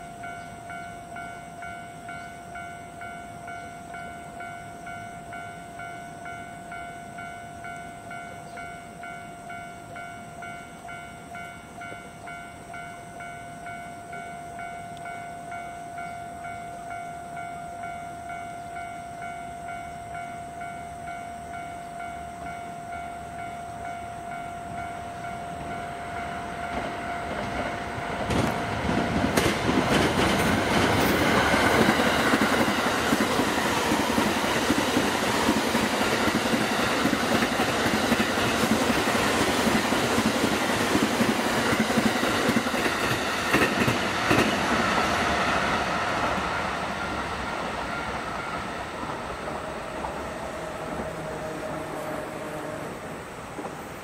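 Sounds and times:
train passing: 0.0 - 54.0
train wheels clattering on rails: 24.7 - 51.2, 53.5 - 54.0.

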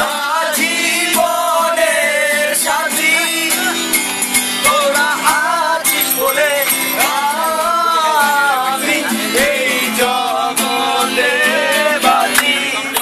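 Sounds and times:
acoustic guitar strumming: 0.0 - 13.0
person singing: 4.6 - 12.9.

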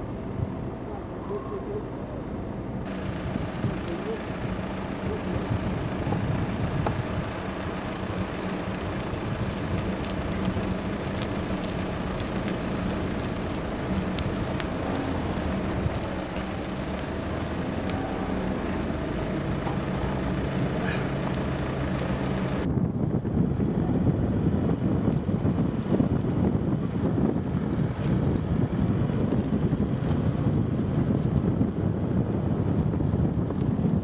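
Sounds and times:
low hum: 0.0 - 32.1
road rumble: 0.0 - 34.0
wind buffeting microphone: 2.7 - 34.0
mountain bikes rolling past: 2.9 - 22.7.

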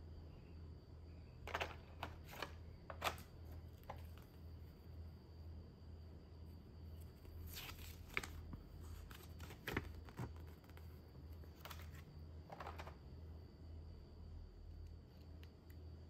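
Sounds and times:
faint low hum: 0.0 - 16.0
plastic tray rattling: 1.5 - 4.1, 12.5 - 13.0
paper rustling and crackling: 7.4 - 13.0.

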